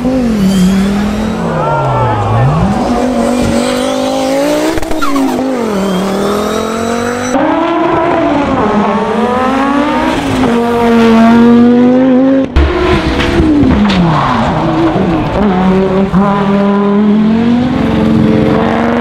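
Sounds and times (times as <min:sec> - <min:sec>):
car engine revving through gears: 0:00.0 - 0:19.0.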